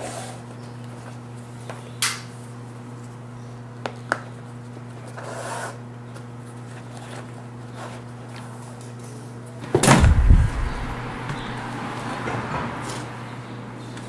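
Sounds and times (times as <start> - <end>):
steady low hum: 9.8 - 11.8.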